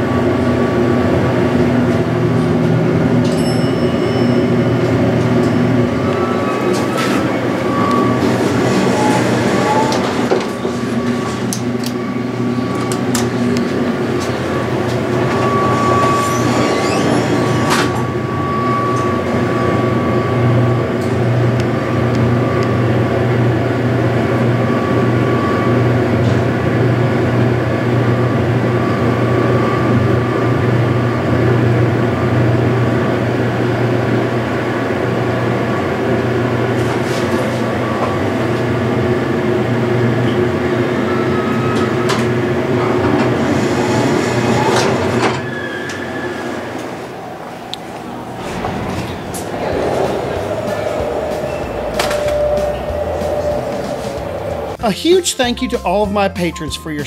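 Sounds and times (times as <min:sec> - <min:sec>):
elevator low hum: 0:00.0 - 0:57.0
elevator doors knocking: 0:48.1 - 0:54.8.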